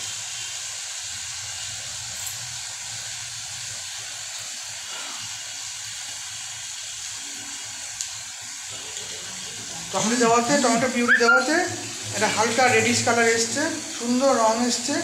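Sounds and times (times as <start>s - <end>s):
food sizzling in oil: 0.0s - 15.0s.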